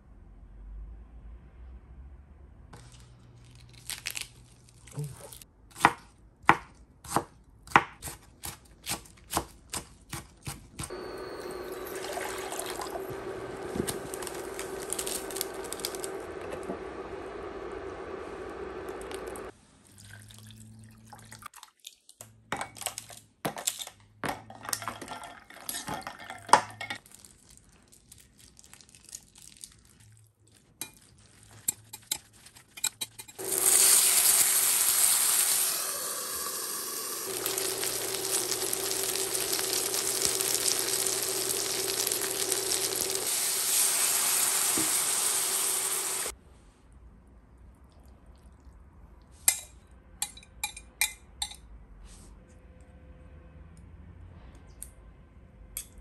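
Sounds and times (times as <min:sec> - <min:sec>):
water pouring: 0:10.9 - 0:16.2, 0:19.8 - 0:22.0, 0:36.3 - 0:46.3
dumplings sizzling in frying pan: 0:10.9 - 0:19.5, 0:33.4 - 0:46.4
kitchen utensils clinking: 0:22.6 - 0:27.0.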